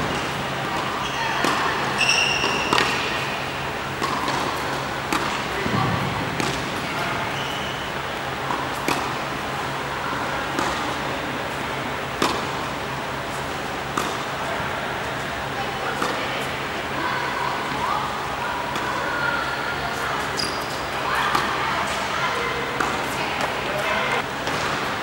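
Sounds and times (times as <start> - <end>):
ball bouncing on hard court: 0.0 - 3.2, 5.1 - 6.8
tennis ball struck by rackets: 0.0 - 3.2, 4.0 - 6.8, 8.4 - 9.2, 10.4 - 11.0, 12.1 - 12.6, 13.8 - 14.3, 21.3 - 22.0
shoe squeaks: 1.0 - 3.4, 7.2 - 8.0, 20.3 - 20.9.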